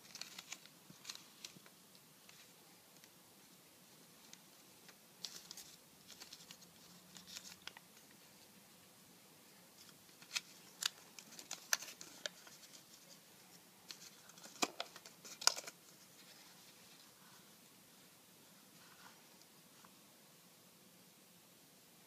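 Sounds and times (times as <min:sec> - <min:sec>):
paper rustling: 0:00.0 - 0:02.6, 0:04.1 - 0:08.2, 0:09.8 - 0:17.5.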